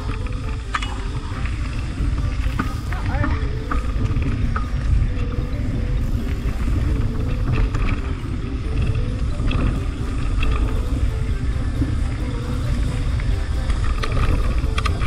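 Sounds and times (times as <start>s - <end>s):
bike rattling over bumps: 0.0s - 15.0s
wind on microphone: 0.0s - 15.0s.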